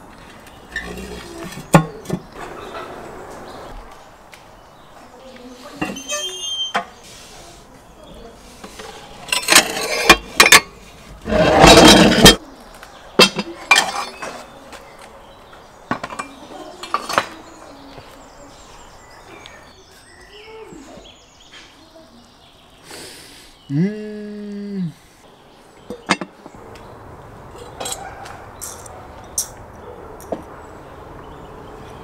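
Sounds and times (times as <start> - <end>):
metal door scraping on brick: 8.7 - 12.4.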